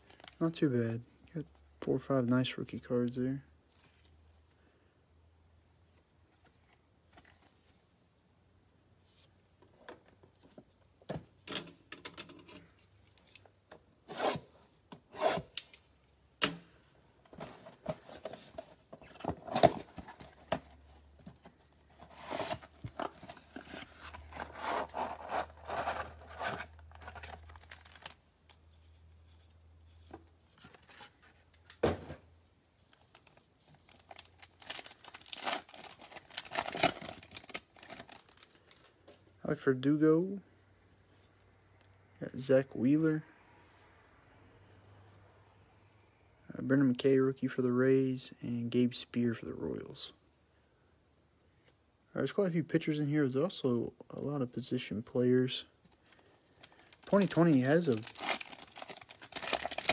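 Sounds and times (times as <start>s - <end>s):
cardboard tearing: 22.1s - 28.1s, 34.1s - 38.4s, 57.0s - 59.9s
foil pack crinkling: 24.2s - 28.2s, 33.1s - 38.9s, 56.1s - 59.9s.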